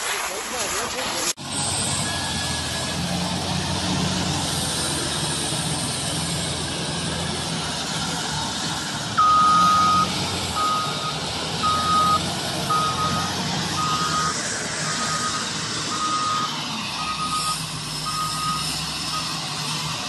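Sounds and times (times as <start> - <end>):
diesel engine running: 1.4 - 20.0
reversing alarm beeping: 1.7 - 3.0, 9.2 - 19.8.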